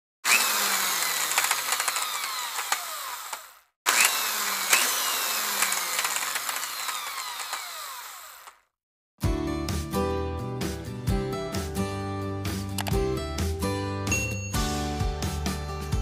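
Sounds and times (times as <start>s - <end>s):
mechanical whirring and clicking: 0.3s - 8.6s.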